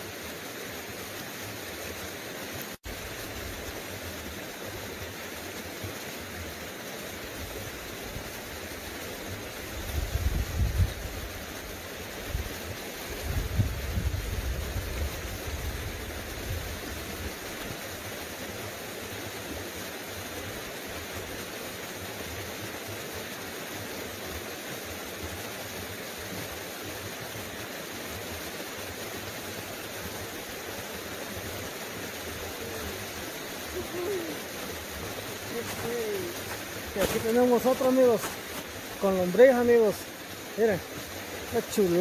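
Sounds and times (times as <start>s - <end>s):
creek water flowing: 0.0s - 42.0s
wind buffeting microphone: 9.8s - 11.2s, 13.2s - 15.9s.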